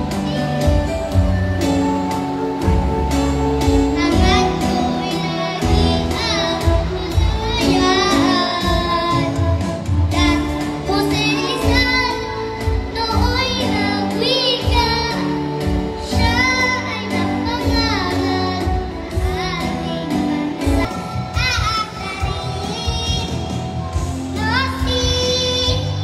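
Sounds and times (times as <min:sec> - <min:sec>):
girl singing into microphone: 0:00.0 - 0:26.0
instrumental backing music: 0:00.0 - 0:26.0.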